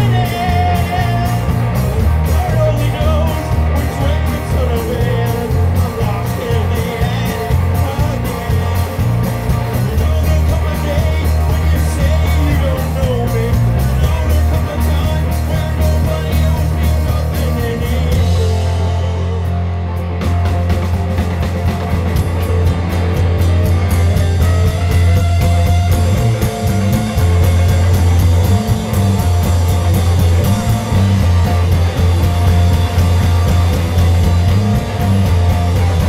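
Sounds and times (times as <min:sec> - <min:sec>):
man singing: 0:00.0 - 0:19.8
live rock band playing: 0:00.0 - 0:36.0.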